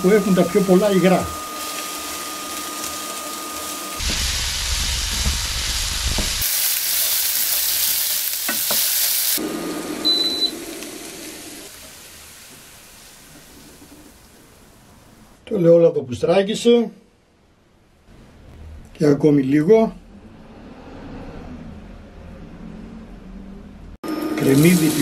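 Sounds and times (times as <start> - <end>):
vegetables sizzling in a pan: 0.0 - 14.8, 24.1 - 25.0
short high beep: 10.0 - 10.6.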